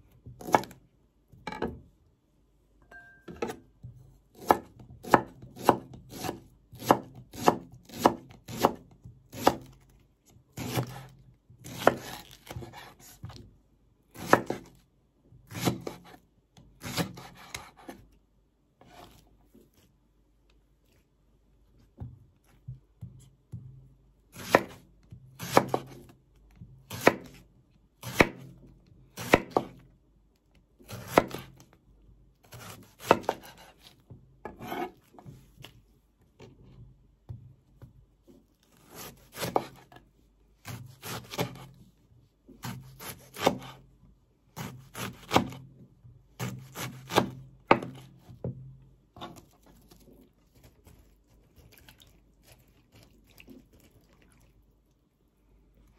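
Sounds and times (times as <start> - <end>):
knife chopping on wooden board: 0.4 - 0.8, 4.3 - 9.7, 10.6 - 13.4, 14.2 - 14.7, 15.5 - 16.2, 16.8 - 18.0, 24.3 - 24.8, 25.4 - 26.0, 26.9 - 27.4, 28.0 - 28.5, 29.2 - 29.8, 30.9 - 31.5, 32.5 - 35.4, 38.9 - 40.0, 40.6 - 41.7, 42.6 - 43.8, 44.6 - 45.6, 46.4 - 48.5, 49.2 - 49.5.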